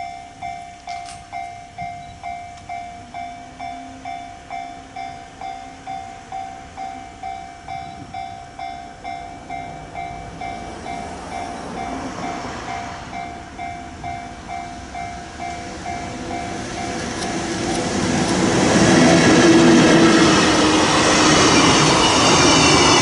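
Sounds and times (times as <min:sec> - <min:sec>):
crossing warning bell dinging: 0:00.0 - 0:23.0
freight train rumble: 0:00.0 - 0:23.0.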